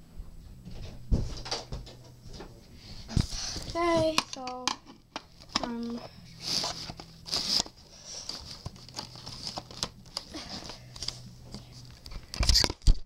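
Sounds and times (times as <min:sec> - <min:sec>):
packaging rustling and crinkling: 0:05.3 - 0:13.0.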